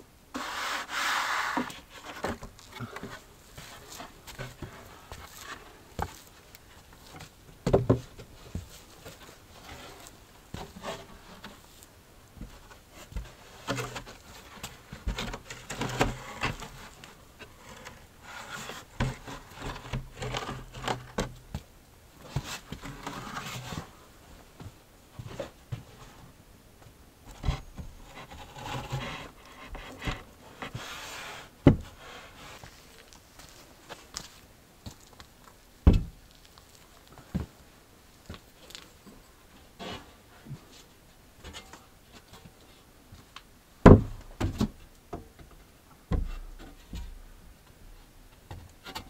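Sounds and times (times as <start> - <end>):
wood scraping and rubbing: 0.3 - 6.2, 12.4 - 21.3, 22.2 - 24.0, 27.3 - 34.0
wood knocking against wood: 46.1 - 47.2.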